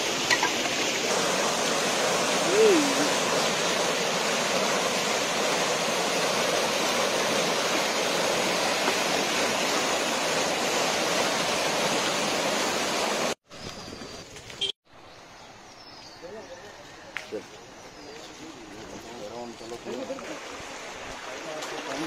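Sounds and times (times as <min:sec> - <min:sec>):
floodwater gushing: 0:00.0 - 0:13.4, 0:18.2 - 0:22.0.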